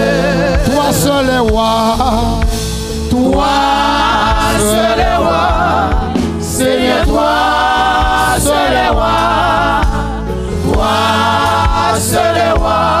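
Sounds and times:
band with bass line: 0.0 - 13.0
group of voices singing: 0.0 - 13.0.

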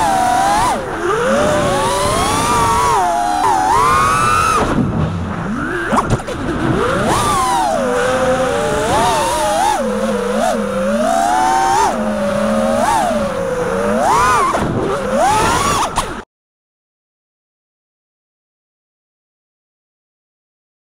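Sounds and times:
drone motors whining: 0.0 - 16.2.

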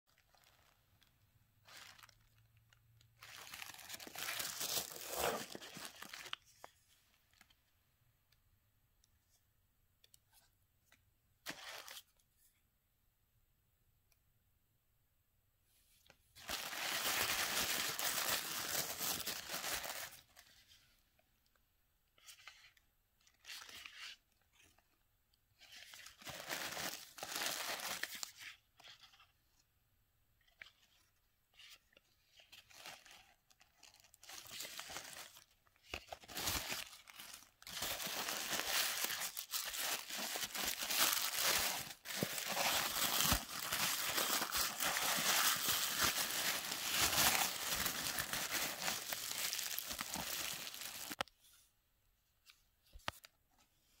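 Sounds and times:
tissue paper rustling and crinkling: 1.6 - 2.3, 3.2 - 6.7, 16.4 - 20.7, 25.6 - 29.2, 32.4 - 51.2.

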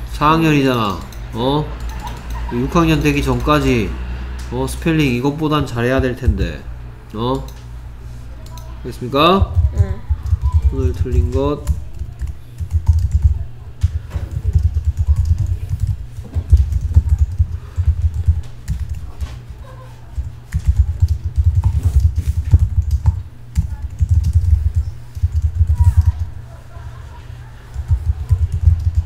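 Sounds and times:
fast typing on keyboard: 1.8 - 3.7, 9.4 - 19.3, 20.1 - 26.3, 27.7 - 29.0.

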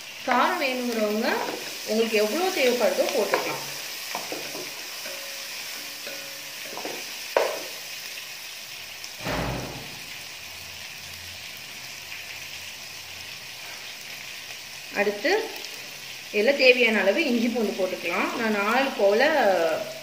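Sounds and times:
onions frying in oil: 0.0 - 20.0
dull deep thump: 9.2 - 10.0
sharp knock: 9.2 - 10.1.

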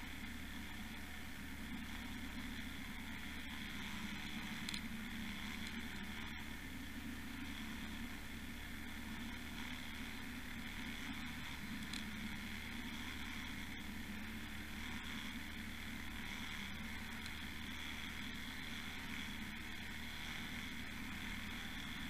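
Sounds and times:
boat motor drone underwater: 0.0 - 22.0
faint ticks: 3.5 - 6.4, 10.6 - 13.6, 16.2 - 18.1.

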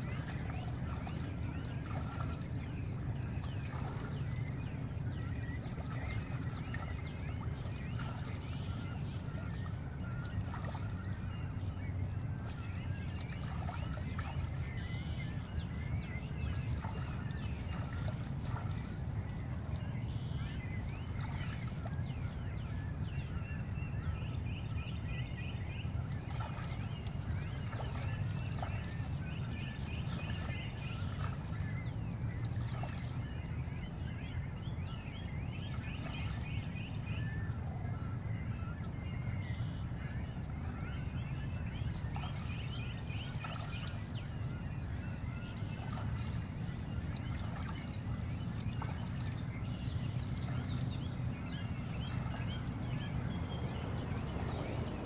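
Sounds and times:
steady low rumble: 0.0 - 24.2, 42.9 - 55.0
chorus of bird calls: 0.0 - 55.0.

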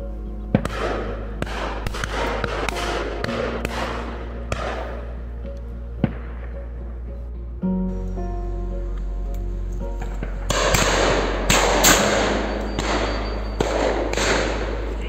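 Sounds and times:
background music with held notes: 0.0 - 15.0
sharp cracks: 0.5 - 6.7, 10.0 - 15.0.

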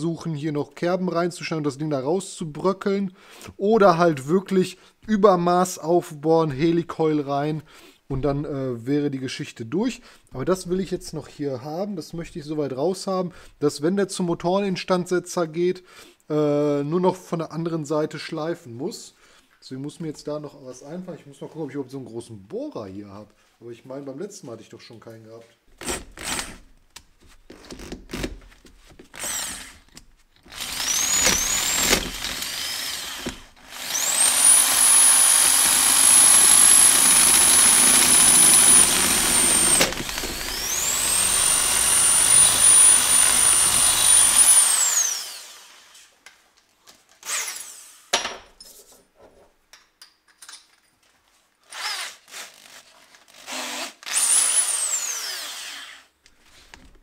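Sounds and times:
electric drill grinding metal: 29.2 - 46.1, 47.2 - 48.1, 51.7 - 52.7, 53.3 - 56.1.

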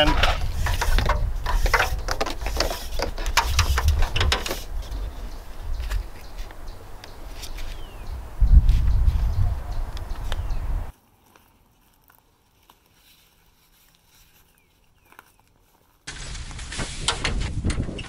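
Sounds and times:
plastic hose rustling and scraping: 0.0 - 6.6, 7.2 - 8.0, 11.1 - 18.0.

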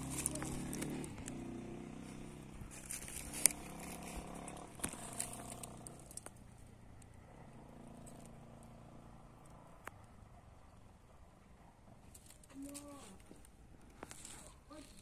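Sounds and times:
sharp clicks and crackles: 0.0 - 1.5, 2.7 - 7.3
faint engine hum: 0.0 - 15.0.

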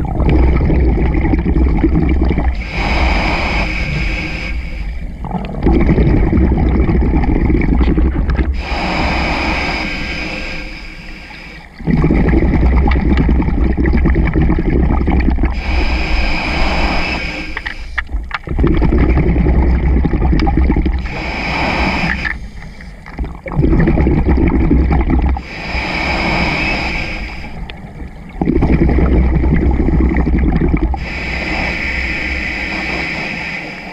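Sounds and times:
exhaled bubbles rushing: 0.0 - 10.0, 11.7 - 33.3
regulator hiss on inhale: 2.6 - 5.2, 8.5 - 11.8, 15.5 - 18.2, 21.0 - 23.2, 25.4 - 27.9, 30.9 - 33.9.

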